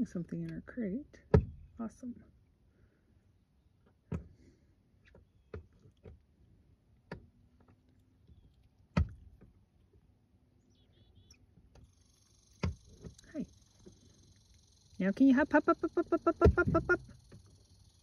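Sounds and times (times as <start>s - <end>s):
sharp knocks and thumps: 1.3s - 1.6s, 8.9s - 9.5s, 12.6s - 13.2s
faint chirps: 10.6s - 18.0s.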